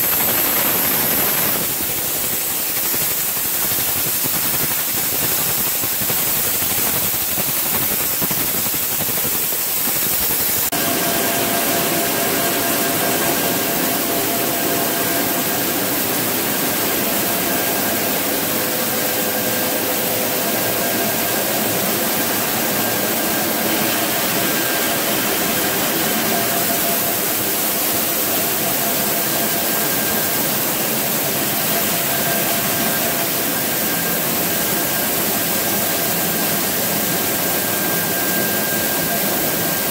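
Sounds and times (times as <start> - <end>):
milling machinery drone: 10.1 - 39.9.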